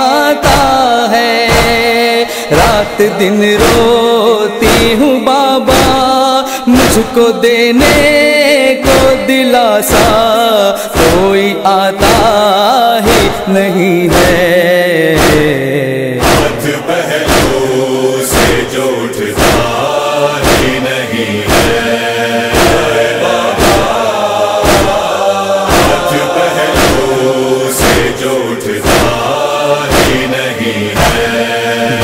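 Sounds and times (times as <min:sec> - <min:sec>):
chorus chanting: 0:00.0 - 0:32.0
steady drum beat: 0:12.0 - 0:12.4, 0:15.2 - 0:15.6, 0:16.2 - 0:32.0.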